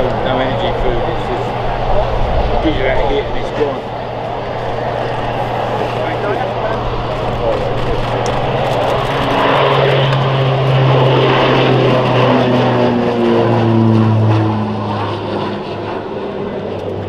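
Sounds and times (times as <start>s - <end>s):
turboprop aircraft propeller drone: 0.0s - 17.0s.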